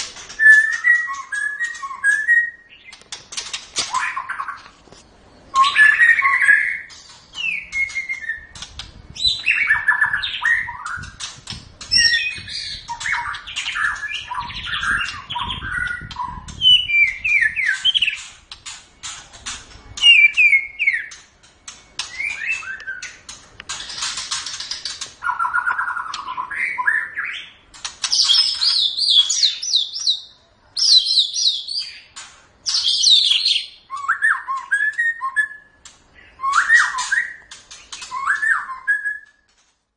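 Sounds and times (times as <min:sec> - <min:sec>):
bird singing whistled phrases: 0:00.4 - 0:03.0, 0:05.5 - 0:08.5, 0:09.2 - 0:11.2, 0:20.0 - 0:21.2, 0:21.8 - 0:23.2, 0:32.7 - 0:39.4.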